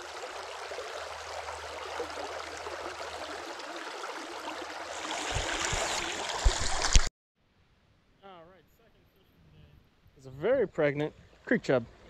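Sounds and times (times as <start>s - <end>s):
creek water running over stones: 0.0s - 7.1s.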